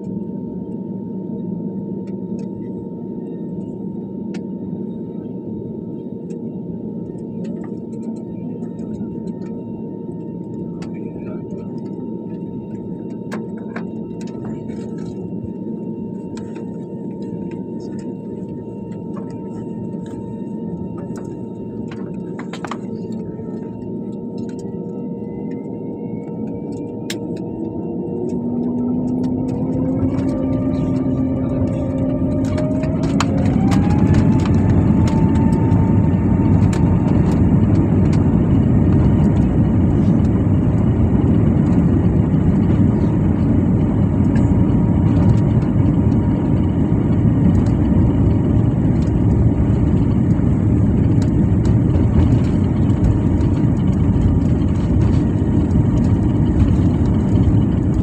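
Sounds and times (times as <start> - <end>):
jet engines whining: 0.0 - 58.0
take-off roll rumble: 27.6 - 58.0.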